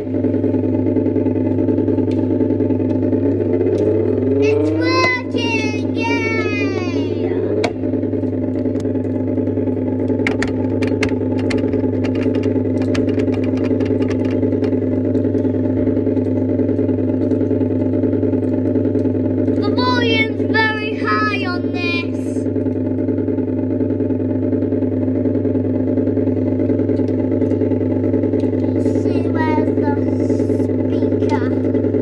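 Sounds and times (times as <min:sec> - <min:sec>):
motorbike engine drone from speaker: 0:00.0 - 0:32.0
child's voice: 0:04.4 - 0:07.6, 0:19.6 - 0:22.5, 0:28.8 - 0:31.8.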